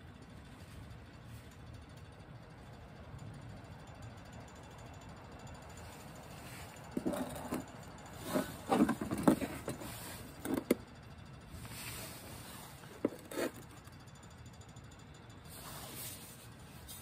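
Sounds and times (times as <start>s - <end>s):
glass bottle knocks and scrapes: 7.0s - 10.8s, 13.0s - 13.7s.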